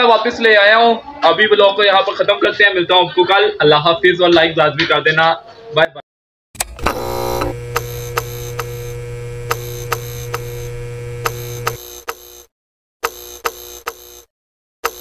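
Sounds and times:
electrical hum: 0:06.6 - 0:11.8
sharp clicks: 0:06.6 - 0:12.2, 0:13.0 - 0:14.0
electrical buzzing: 0:06.6 - 0:12.5, 0:13.1 - 0:15.0.

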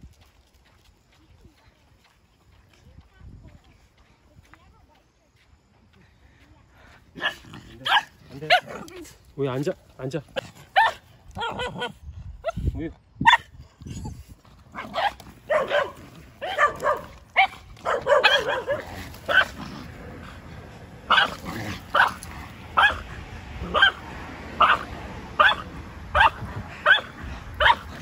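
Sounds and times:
small dog barking: 0:07.2 - 0:08.9, 0:10.8 - 0:12.6, 0:13.2 - 0:13.5, 0:14.8 - 0:19.6, 0:21.1 - 0:22.2, 0:22.8 - 0:23.0, 0:23.6 - 0:24.0, 0:24.6 - 0:27.9.

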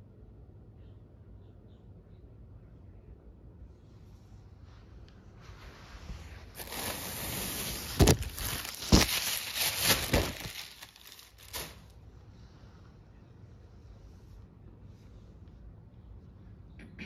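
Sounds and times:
plastic bag rustling: 0:06.0 - 0:12.0.

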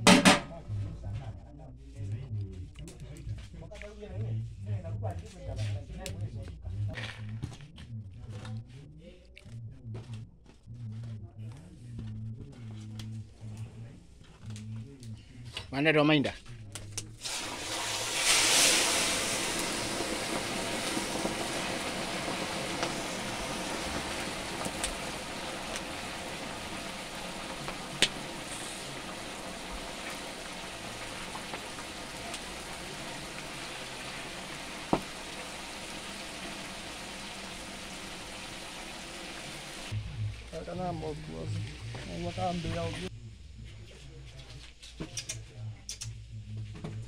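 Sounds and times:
fish sizzling in hot oil: 0:17.2 - 0:40.0.

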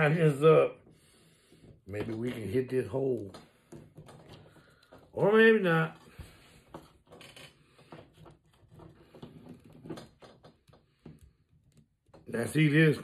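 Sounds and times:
hard plastic clicks and scrapes: 0:06.0 - 0:12.4.

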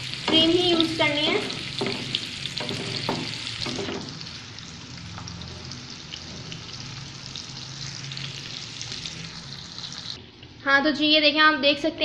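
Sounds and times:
food sizzling in a pan: 0:00.0 - 0:10.2
utensil knocks: 0:01.8 - 0:04.2.

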